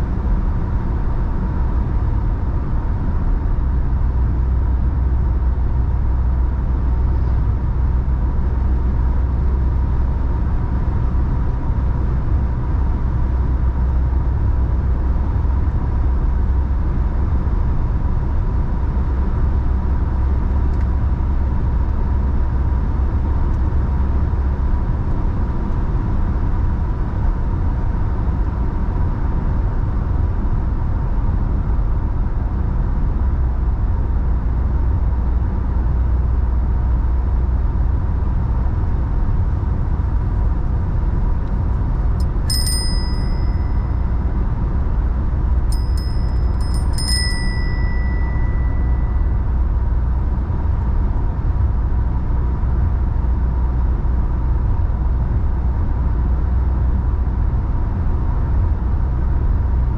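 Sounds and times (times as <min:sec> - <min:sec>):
thin steady tone: 0:42.2 - 0:44.1, 0:45.7 - 0:49.3.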